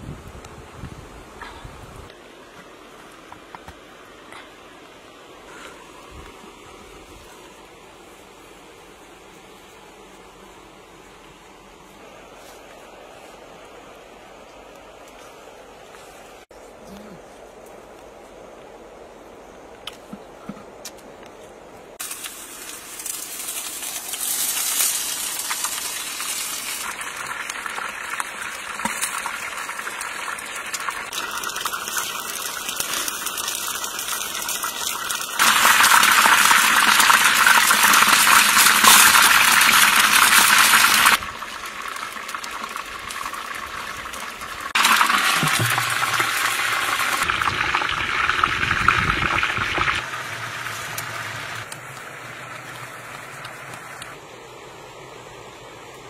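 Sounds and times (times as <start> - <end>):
water and food being handled: 22.0 - 47.8.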